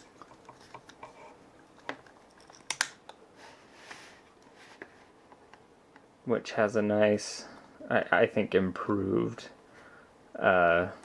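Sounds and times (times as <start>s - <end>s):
plastic bulbs clicking: 1.9s - 3.2s.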